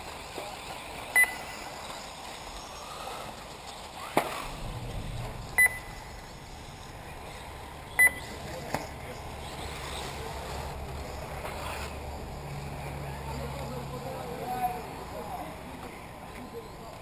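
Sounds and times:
short high electronic beeps: 0:01.2 - 0:01.5, 0:05.6 - 0:06.2, 0:08.0 - 0:08.3.

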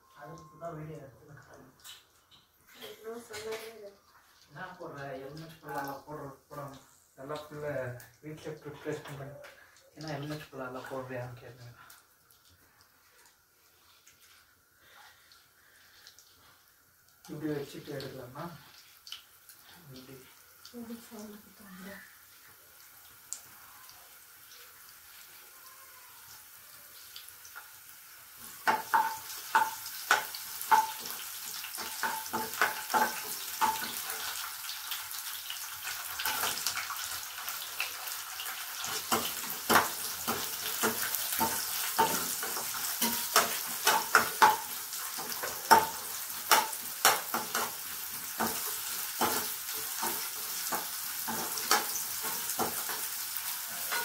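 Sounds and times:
garlic sizzling in oil: 0:00.0 - 0:54.0
spoon clicking against pan: 0:28.6 - 0:31.1, 0:43.0 - 0:47.8.

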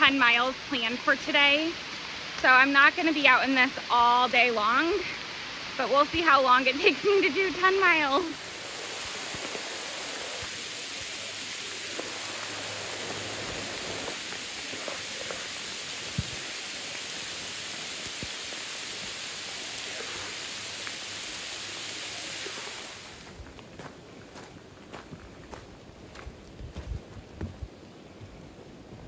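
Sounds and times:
steady rain in forest: 0:00.0 - 0:29.0
raindrop clicks: 0:09.0 - 0:19.1.

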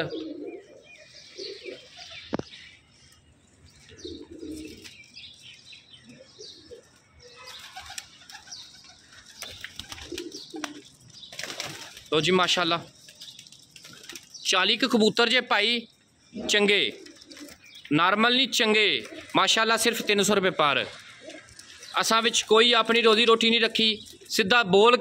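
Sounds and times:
pigeons cooing: 0:00.0 - 0:02.8, 0:03.7 - 0:12.1, 0:16.2 - 0:17.9, 0:18.6 - 0:22.5
bird chirps: 0:00.0 - 0:24.5
wings flapping: 0:07.4 - 0:14.4, 0:16.9 - 0:17.7.

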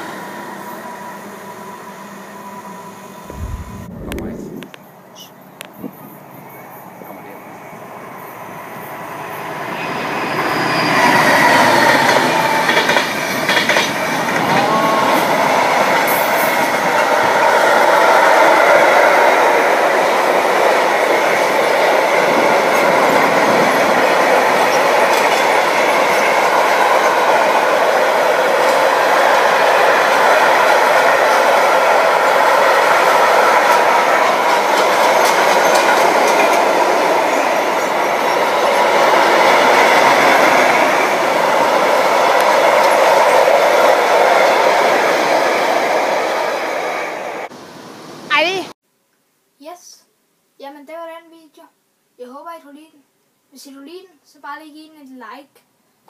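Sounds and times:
train wheels on rails: 0:08.3 - 0:47.5.

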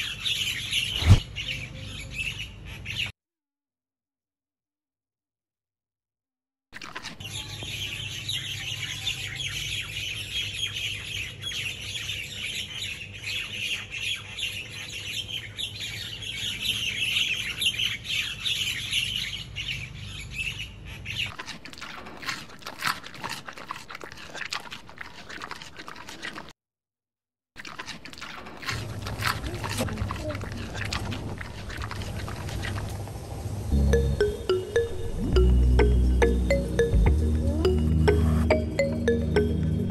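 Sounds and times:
birds chirping and squawking: 0:00.0 - 0:03.1, 0:07.1 - 0:22.2.

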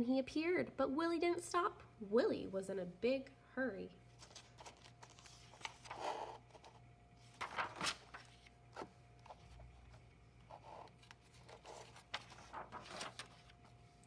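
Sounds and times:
book pages turning: 0:04.2 - 0:14.0.

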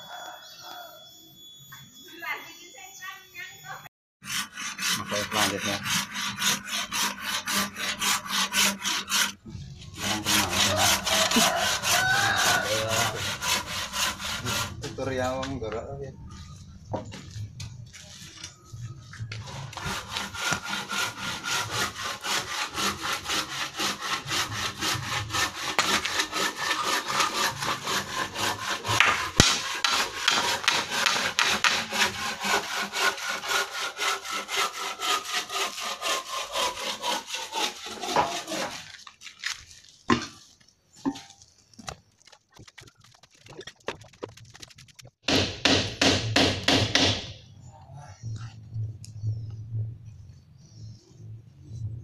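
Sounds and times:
hand saw cutting wood: 0:04.2 - 0:09.4, 0:10.0 - 0:15.0, 0:19.4 - 0:39.2.

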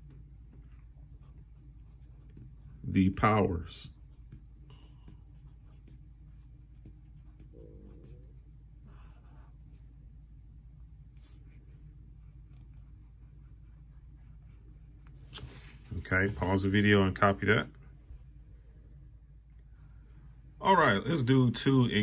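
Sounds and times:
marker scratching on paper: 0:00.5 - 0:03.0, 0:03.9 - 0:09.9, 0:11.2 - 0:16.6
low hum: 0:03.9 - 0:21.0.

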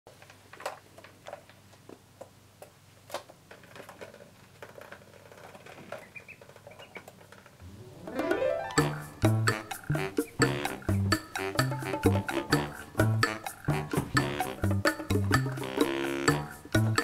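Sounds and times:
rising sweep: 0:07.6 - 0:09.3
music: 0:07.6 - 0:17.0.

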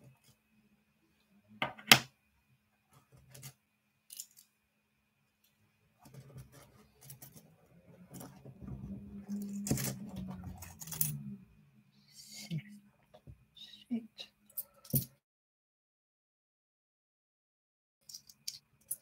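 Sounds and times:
low steady hum: 0:05.9 - 0:15.0.

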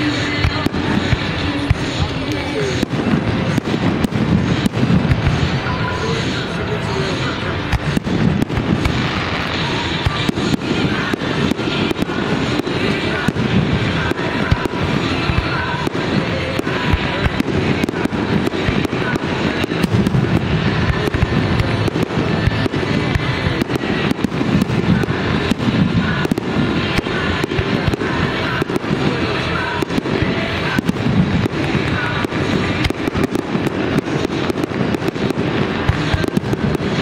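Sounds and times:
fireworks bangs and crackles: 0:00.0 - 0:37.0.

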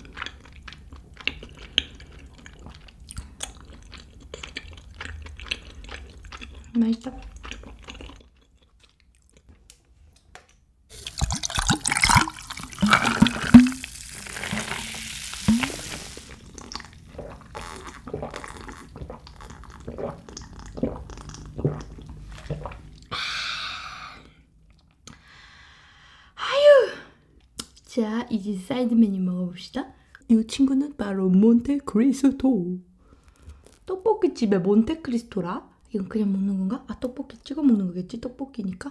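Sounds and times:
cola pouring and fizzing: 0:10.9 - 0:23.1
ice clinking: 0:11.0 - 0:16.1
gulping swallows: 0:15.5 - 0:23.2.

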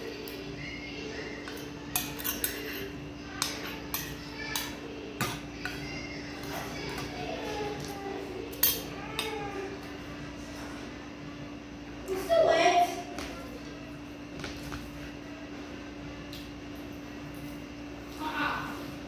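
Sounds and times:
metal spoon clinking on ceramic plate: 0:01.9 - 0:05.4, 0:08.5 - 0:09.3.

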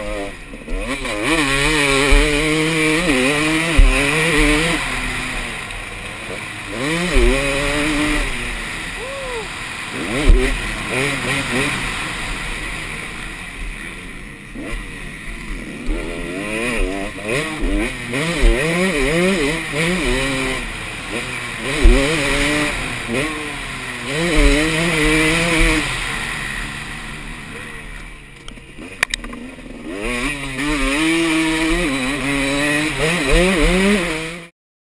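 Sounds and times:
motocross engine revving: 0:00.0 - 0:34.5
low thumps: 0:01.4 - 0:05.4, 0:06.8 - 0:08.4, 0:21.6 - 0:23.2, 0:24.1 - 0:25.9.

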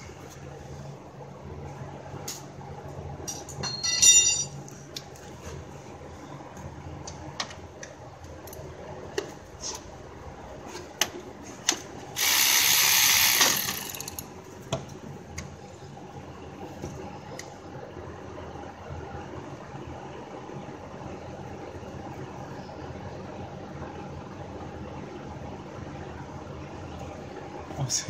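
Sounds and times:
loud buzz: 0:12.2 - 0:14.0
ratchet wrench clicks: 0:12.2 - 0:14.3.

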